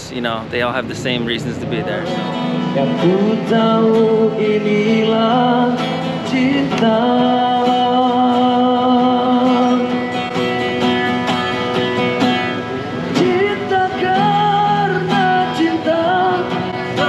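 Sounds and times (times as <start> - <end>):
strummed acoustic guitar: 0.0 - 17.0
person singing: 13.1 - 17.0.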